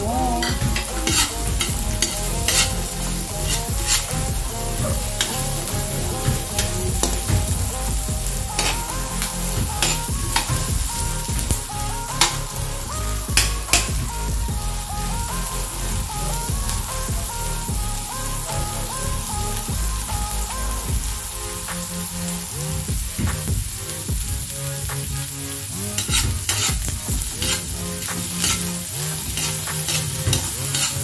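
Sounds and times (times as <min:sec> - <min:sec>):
onion sizzling in hot oil: 0:00.0 - 0:31.0
spatula scraping a wok: 0:00.5 - 0:07.5, 0:08.5 - 0:11.2, 0:25.4 - 0:31.0.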